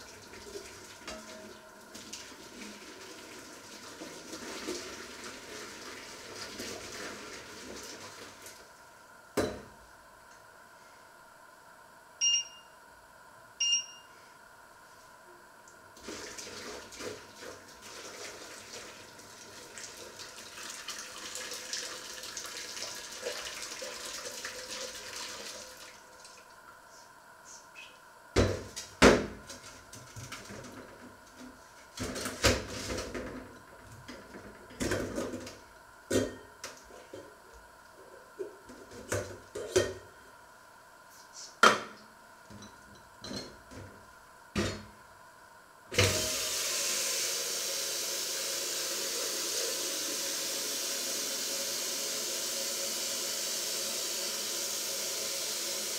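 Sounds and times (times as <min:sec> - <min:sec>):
short high beeps: 0:12.2 - 0:12.8, 0:13.6 - 0:14.1.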